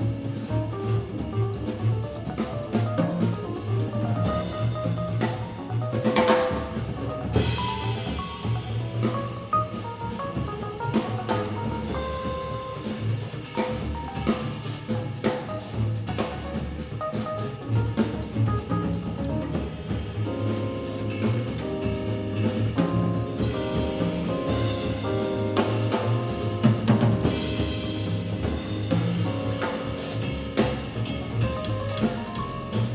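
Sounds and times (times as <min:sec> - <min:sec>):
double bass: 0:00.0 - 0:32.9
drum kit: 0:00.0 - 0:32.9
grand piano: 0:00.0 - 0:32.9.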